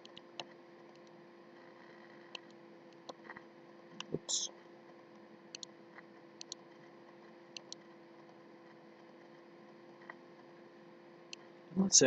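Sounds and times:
computer mouse clicks: 0.0 - 1.2, 4.0 - 4.2, 5.5 - 5.7, 6.4 - 6.6, 7.5 - 7.8
faint steady hum: 0.0 - 12.0.

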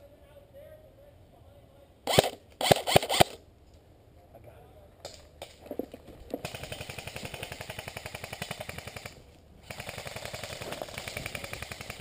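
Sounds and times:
airsoft gun automatic fire: 2.1 - 3.4, 6.4 - 12.0.

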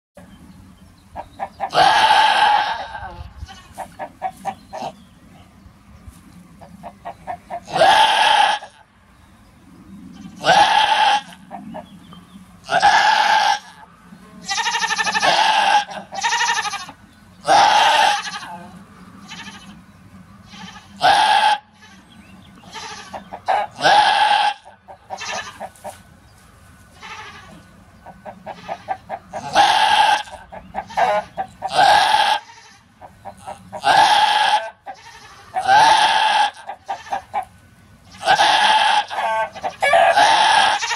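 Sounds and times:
goat bleating loudly: 1.7 - 3.9, 7.6 - 8.8, 10.3 - 11.4, 12.7 - 13.8, 14.4 - 19.8, 20.5 - 22.1, 22.7 - 25.9, 27.0 - 27.6, 28.4 - 37.4, 38.1 - 40.9.

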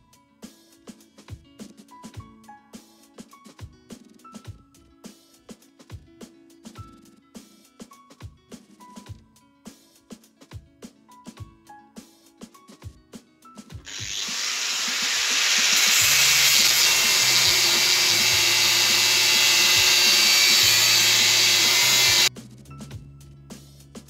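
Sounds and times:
angle grinder cutting steel: 13.9 - 22.3.

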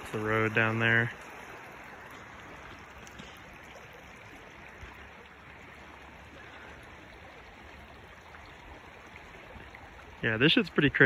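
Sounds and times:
stream flowing over gravel: 0.0 - 11.0.

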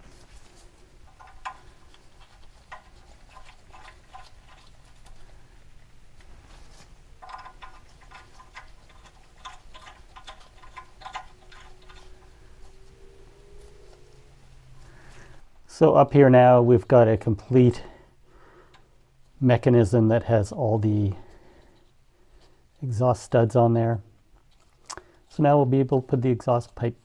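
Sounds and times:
metallic clicking of stud threading: 1.0 - 4.7, 7.2 - 12.4.

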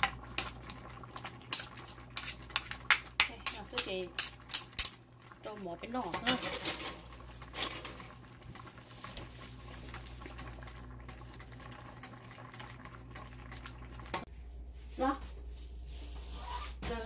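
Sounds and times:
food bubbling and popping in pan: 0.0 - 14.3.

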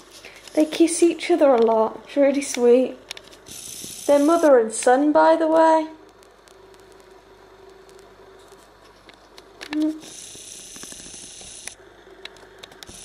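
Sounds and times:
faint fan hum: 0.0 - 13.0
soft hummed voice: 0.0 - 13.0
camera zoom motor whirring: 3.2 - 4.6, 9.7 - 11.8, 12.6 - 13.0.

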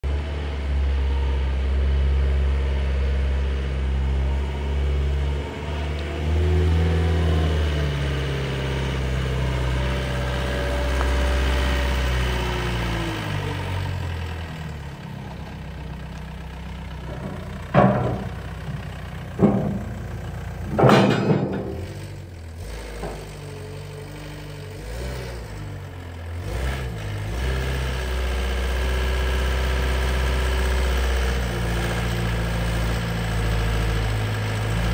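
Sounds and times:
diesel engine running: 0.0 - 34.9
sharp metal clunks: 17.1 - 22.1.

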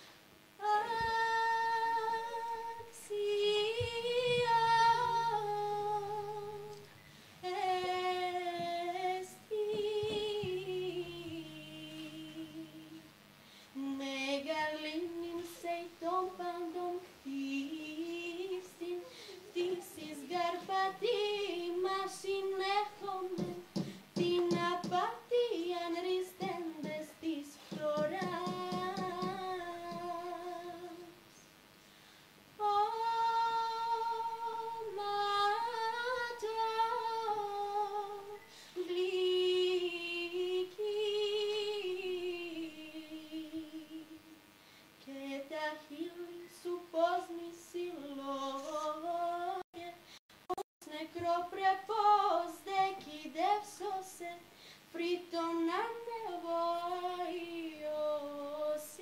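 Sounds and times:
young woman singing: 0.5 - 13.2, 13.8 - 31.3, 32.6 - 44.4, 45.0 - 50.0, 50.8 - 59.0
short breaths: 6.9 - 7.4, 13.4 - 13.8, 19.0 - 19.5, 23.8 - 24.1, 31.8 - 32.4, 38.4 - 38.8, 44.6 - 45.0, 54.5 - 54.9.

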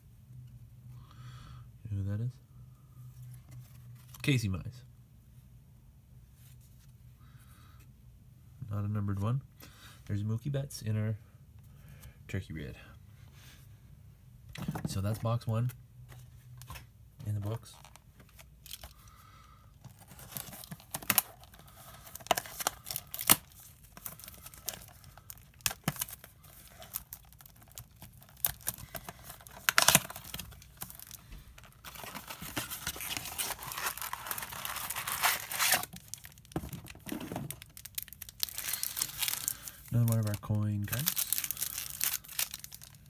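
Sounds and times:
foil wrapper crinkling: 19.8 - 43.0.

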